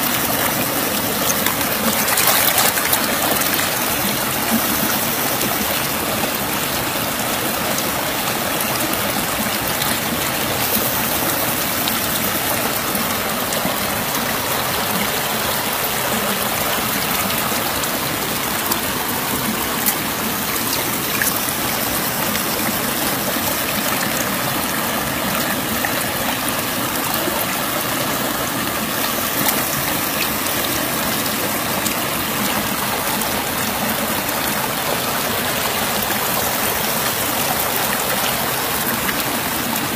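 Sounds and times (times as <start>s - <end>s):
river water rushing over rocks: 0.0s - 39.9s.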